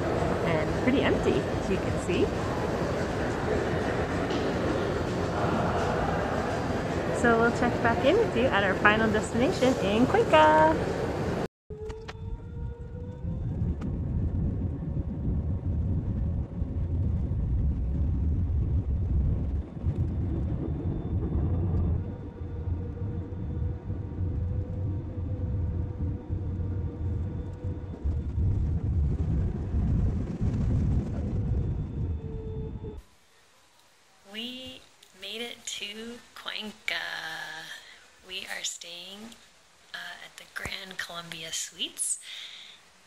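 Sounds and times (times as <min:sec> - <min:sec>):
jet engine whine: 0:00.0 - 0:33.1
jet engine rumble in cabin: 0:07.8 - 0:33.0.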